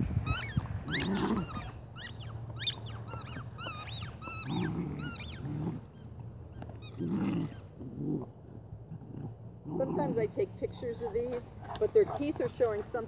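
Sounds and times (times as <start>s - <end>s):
rubber squeaky ball squeaking: 0.0s - 7.7s
puppy growling: 0.3s - 12.3s.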